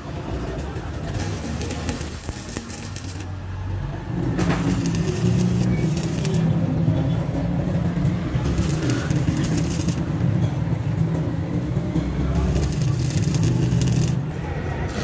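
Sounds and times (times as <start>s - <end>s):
welding arc crackling: 1.0s - 6.9s, 8.0s - 10.2s, 12.2s - 15.0s.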